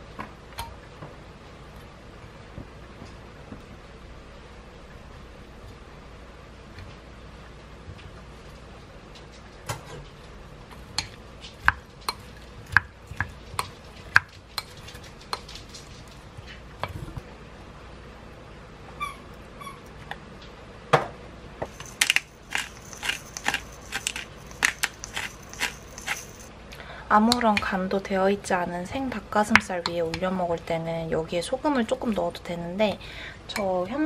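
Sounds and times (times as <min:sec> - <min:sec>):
pepper grinder crunching: 0:21.7 - 0:26.5
utensils scraping a glass bowl: 0:21.7 - 0:26.5.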